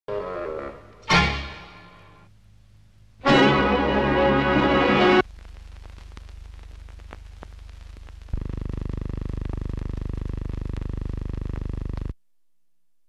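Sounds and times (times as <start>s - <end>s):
electrical hum with crackle: 2.2s - 3.3s, 5.2s - 13.0s
pulsing buzz: 8.3s - 12.1s.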